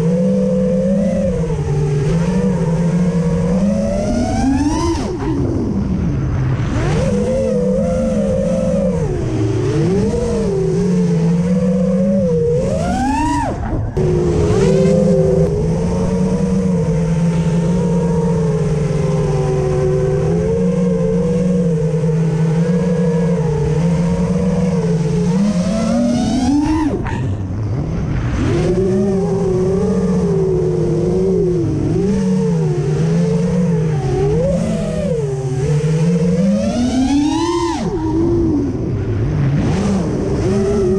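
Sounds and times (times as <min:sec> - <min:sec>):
quadcopter motors whining: 0:00.0 - 0:40.9.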